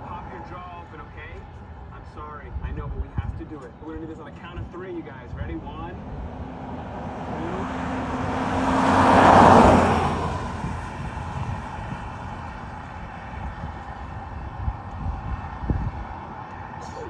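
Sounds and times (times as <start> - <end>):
vehicle passing by: 4.2 - 17.0.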